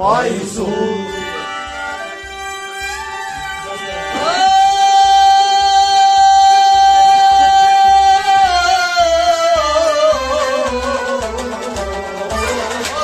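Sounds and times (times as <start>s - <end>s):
man singing: 0.0s - 1.5s, 4.2s - 11.8s
bowed sarangi: 0.0s - 13.0s
harmonium: 0.0s - 13.0s.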